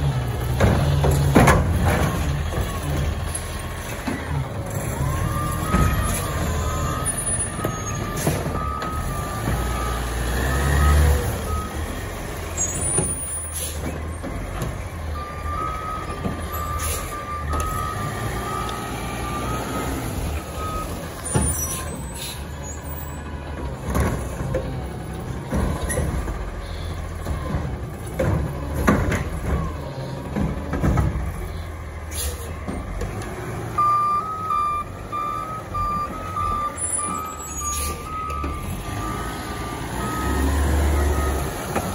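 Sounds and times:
garbage truck diesel engine: 0:00.0 - 0:41.9
backup alarm beeping: 0:33.8 - 0:39.2.

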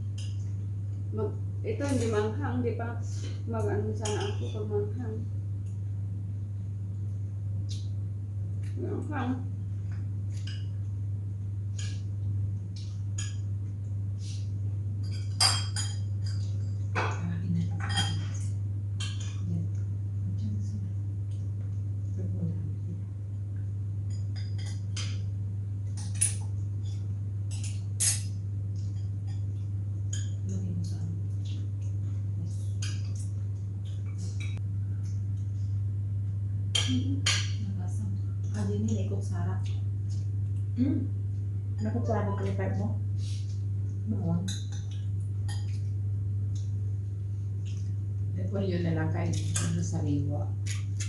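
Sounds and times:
steady low hum: 0:00.0 - 0:51.0
cutlery clinking on plates: 0:17.8 - 0:19.4, 0:26.0 - 0:26.4.

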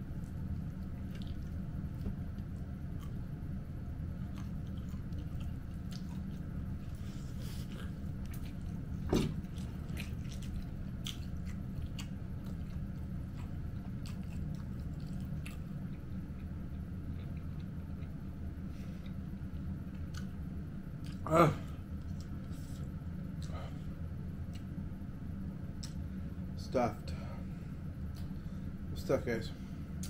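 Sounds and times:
low hum: 0:00.0 - 0:30.0
person chewing: 0:00.2 - 0:03.4, 0:04.1 - 0:18.2, 0:20.0 - 0:20.4.

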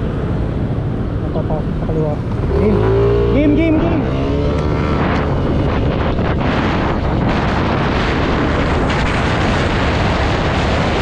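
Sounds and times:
wind rushing on microphone: 0:00.0 - 0:11.0
scooter engine accelerating: 0:02.2 - 0:07.0.

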